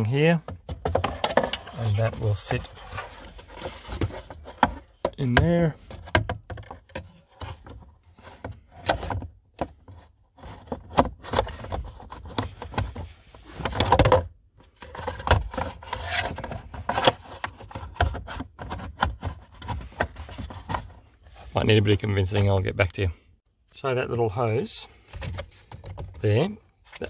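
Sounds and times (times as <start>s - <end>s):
plastic scraping rub: 0.9s - 21.7s.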